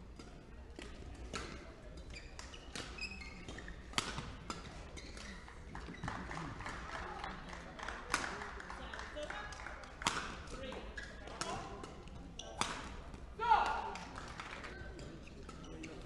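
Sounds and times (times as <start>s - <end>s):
shoes squeaking on court: 1.4s - 6.5s, 12.2s - 13.0s, 14.8s - 16.0s
racket striking shuttlecock: 3.9s - 4.7s, 10.0s - 10.4s, 12.6s - 13.0s.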